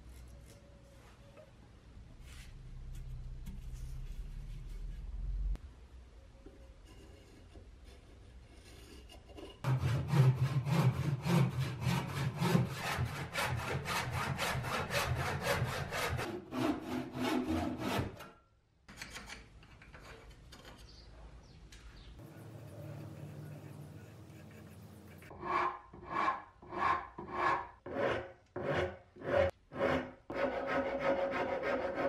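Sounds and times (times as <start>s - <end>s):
hand saw cutting wood: 9.6s - 18.3s
pencil scratching on wood: 22.4s - 32.0s.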